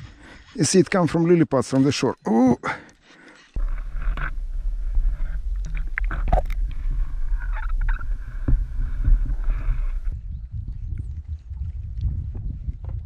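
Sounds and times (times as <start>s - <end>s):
underwater knocks and clicks: 3.6s - 13.0s
underwater rumble of moving water: 3.6s - 13.0s.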